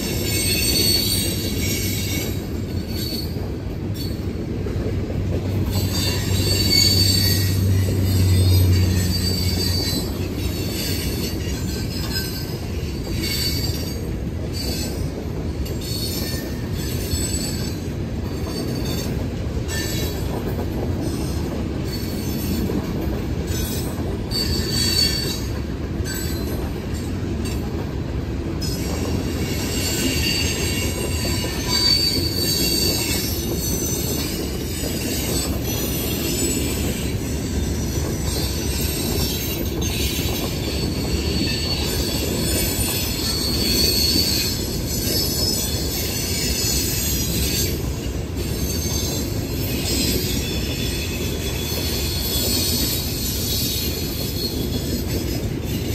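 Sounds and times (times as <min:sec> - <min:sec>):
high wheel squeals: 0:00.0 - 0:04.3, 0:05.6 - 0:27.7, 0:28.6 - 0:55.9
train wheels rumbling on rail: 0:00.0 - 0:55.9.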